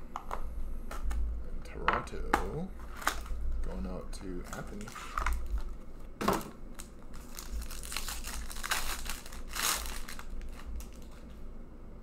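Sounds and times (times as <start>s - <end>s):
foil wrapper tearing and crinkling: 4.5s - 5.8s, 6.7s - 11.2s.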